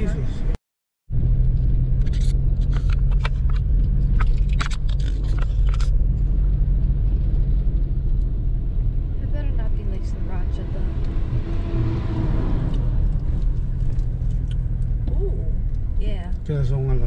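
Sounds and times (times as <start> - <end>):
car engine and road rumble: 0.0 - 17.0
small clicks and rattles: 2.0 - 6.3.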